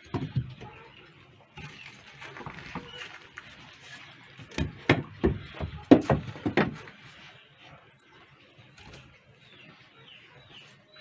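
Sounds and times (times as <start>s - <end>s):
wooden cabinet knocks and bumps: 4.5s - 6.8s.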